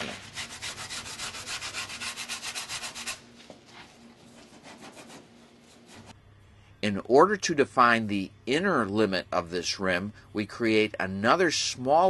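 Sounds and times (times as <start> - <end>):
hand sanding foam: 0.0 - 3.2.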